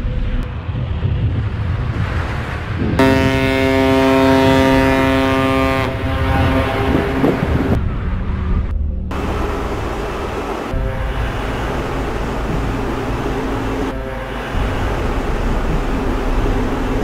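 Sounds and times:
ship rumbling through ice: 0.0 - 17.0
ship's horn blast: 3.0 - 7.8, 9.1 - 17.0.

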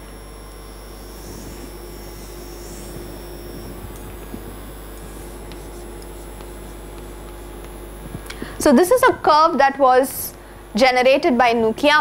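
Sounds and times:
electrical hum: 0.0 - 12.0
chalk drawing on blackboard: 5.0 - 7.7.

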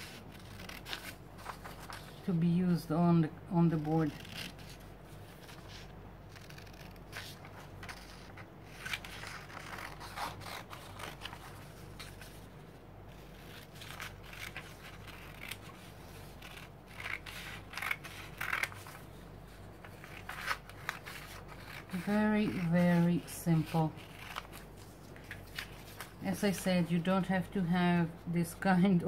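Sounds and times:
scissors cutting paper: 0.0 - 2.0, 3.7 - 4.8, 5.4 - 12.2, 13.2 - 19.0, 19.8 - 24.7.

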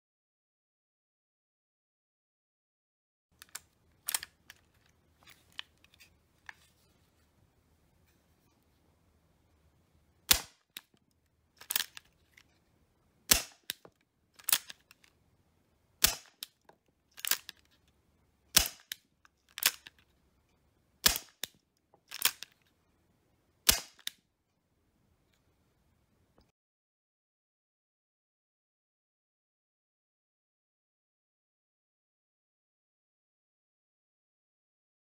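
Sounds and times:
airsoft revolver shots: 10.3 - 10.8, 13.3 - 13.8, 16.0 - 16.5, 18.5 - 19.0, 21.0 - 21.5, 23.7 - 24.1
revolver hammer cocking clicks: 10.3 - 10.9, 16.0 - 16.6, 18.5 - 19.0, 21.0 - 22.5.

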